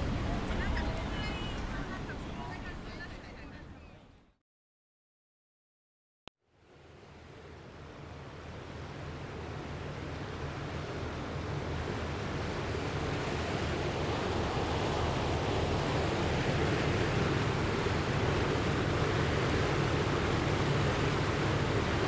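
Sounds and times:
rushing floodwater: 0.0 - 3.8, 6.6 - 22.0
surf: 0.0 - 4.0, 8.3 - 22.0.

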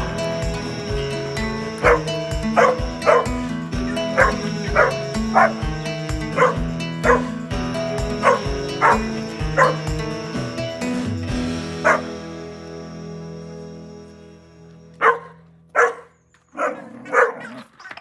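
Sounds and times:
music with a steady beat: 0.0 - 13.3.

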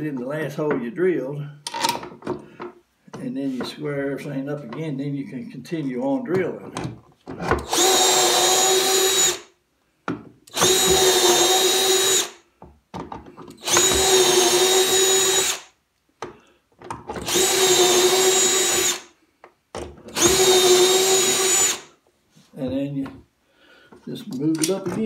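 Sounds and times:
cordless drill boring into wood: 7.5 - 9.5, 10.5 - 12.4, 13.6 - 15.8, 17.2 - 19.1, 20.1 - 21.9.

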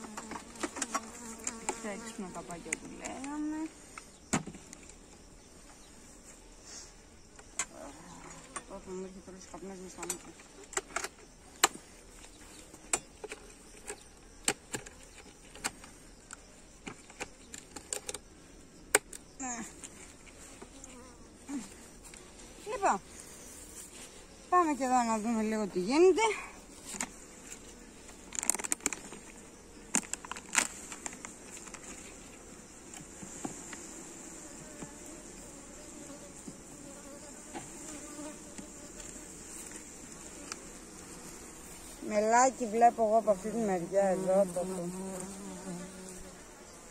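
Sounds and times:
hive tool prying frames: 0.0 - 1.8, 12.8 - 15.9
honeybees buzzing: 0.0 - 17.6, 18.3 - 46.9
bees humming: 19.2 - 46.9.

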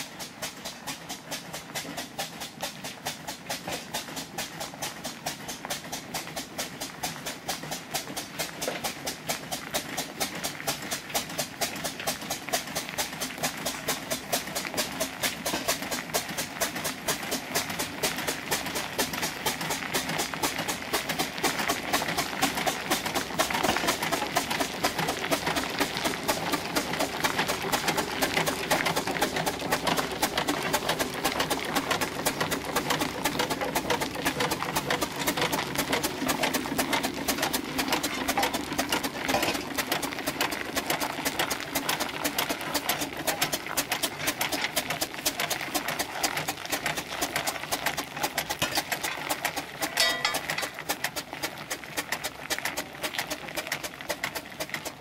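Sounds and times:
steam engine mechanical clatter: 0.0 - 55.0.

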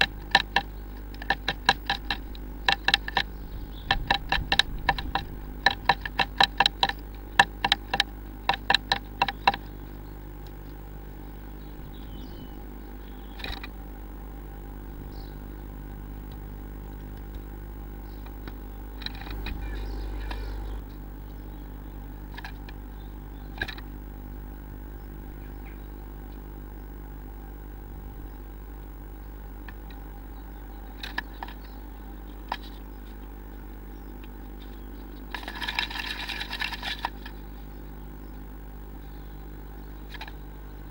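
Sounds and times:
bird scrabbling: 0.0 - 9.8
bird pecking inside nest box: 0.0 - 10.8
low electrical hum: 0.0 - 40.9.

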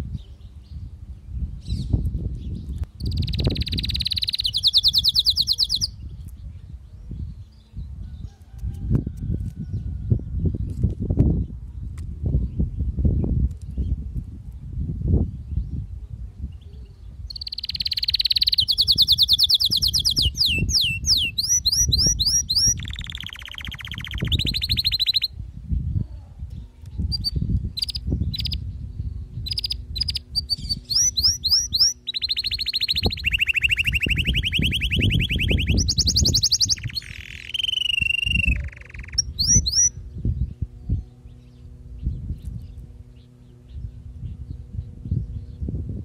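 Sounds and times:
canary singing: 3.0 - 6.0, 17.3 - 25.4, 27.1 - 28.7, 29.5 - 40.0.

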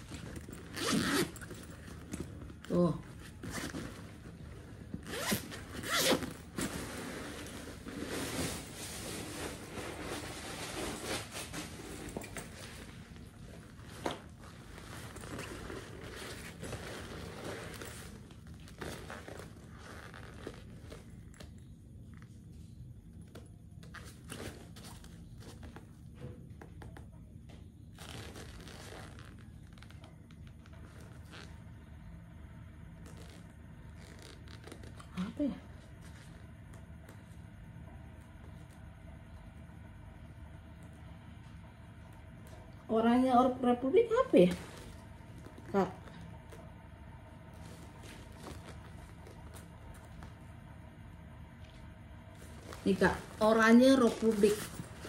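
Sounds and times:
backpack zipper: 0.0 - 2.3, 3.2 - 12.8, 13.9 - 21.0, 33.0 - 35.0, 52.4 - 55.0
fabric rustling: 0.0 - 22.3, 27.9 - 31.8, 44.1 - 55.0.

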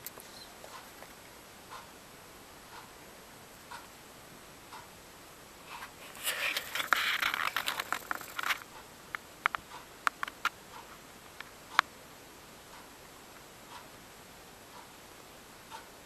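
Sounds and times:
handling rustling and scraping: 5.7 - 8.7.

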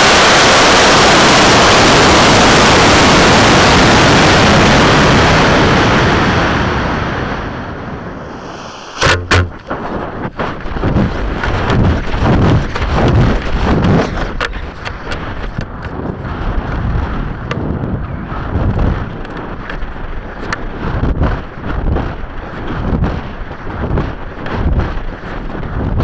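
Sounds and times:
gusty wind rushing: 0.0 - 26.0
rocket motor exhaust noise: 6.7 - 19.4
loud pops: 8.3 - 13.2.

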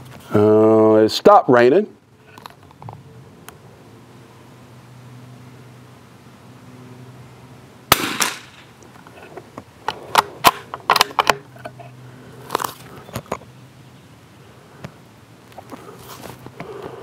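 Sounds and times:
rifle shot with ringing tail: 7.9 - 8.6.

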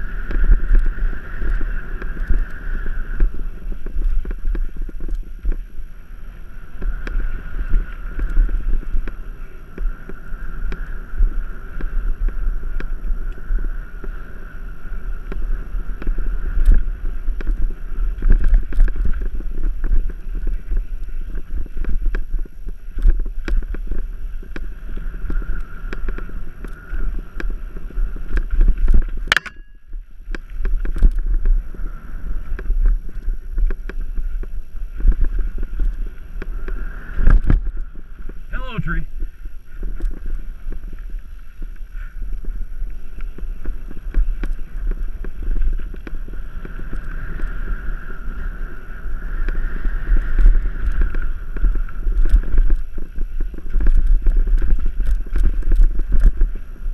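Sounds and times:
bike tyres rumbling on dirt: 0.0 - 56.9
wind buffeting microphone: 0.0 - 56.9
bike rattling clicks and knocks: 18.2 - 31.5, 50.3 - 56.7
sharp click: 29.3 - 29.8.

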